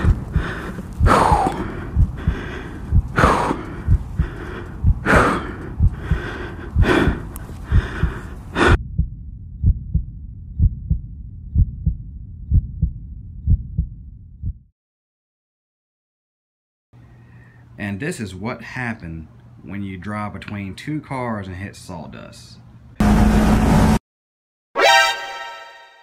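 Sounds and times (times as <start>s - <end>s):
heavy gasping breaths: 0.0s - 8.8s
low heartbeat thudding: 0.0s - 14.7s.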